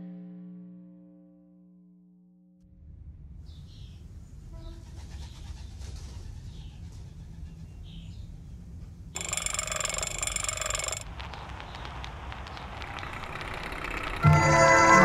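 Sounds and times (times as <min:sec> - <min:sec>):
gramophone crank ratcheting whir: 0:09.2 - 0:11.2, 0:11.9 - 0:15.0.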